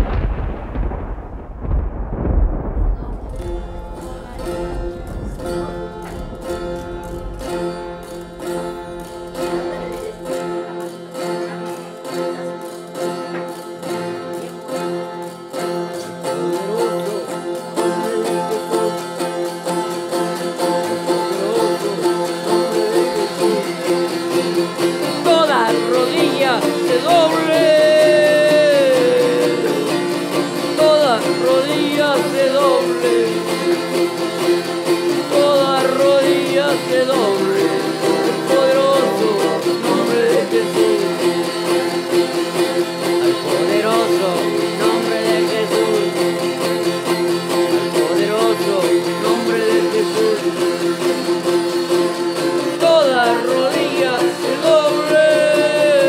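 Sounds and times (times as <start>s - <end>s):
low rumble: 0.0s - 10.3s
strummed string instruments: 0.0s - 56.0s
person singing: 3.0s - 56.0s.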